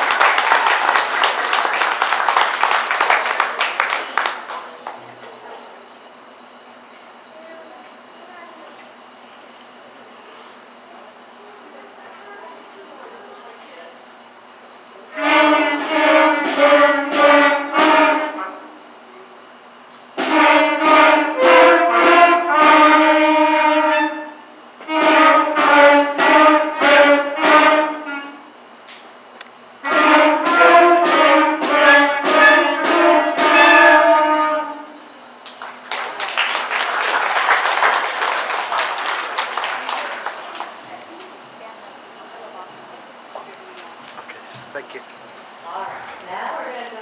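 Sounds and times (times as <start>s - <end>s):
audience applause: 0.0s - 5.2s, 35.4s - 41.3s
clarinets playing simple melody: 15.1s - 18.8s, 20.2s - 28.6s, 29.8s - 35.1s.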